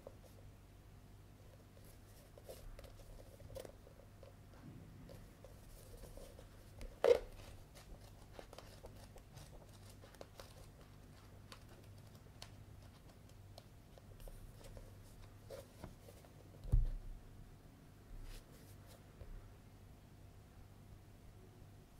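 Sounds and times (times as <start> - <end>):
book pages rustling: 1.8 - 4.4, 5.0 - 17.0
book knocking on wooden table: 16.6 - 17.0.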